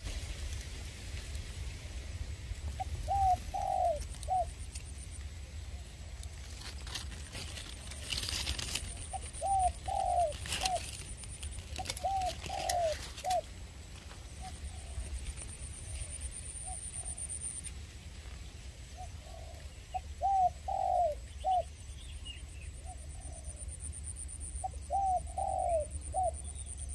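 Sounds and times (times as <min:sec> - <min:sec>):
dove cooing: 0:02.6 - 0:17.6, 0:18.9 - 0:21.8, 0:22.8 - 0:26.9.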